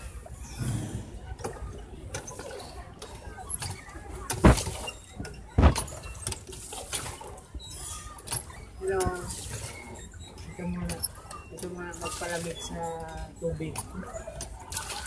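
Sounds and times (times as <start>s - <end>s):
water splashing: 8.8s - 15.0s.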